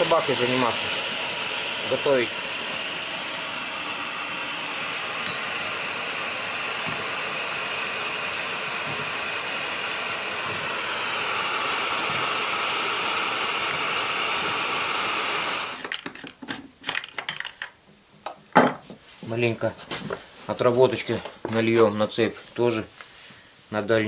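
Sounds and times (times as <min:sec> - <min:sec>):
gas burner hissing: 0:00.0 - 0:16.0.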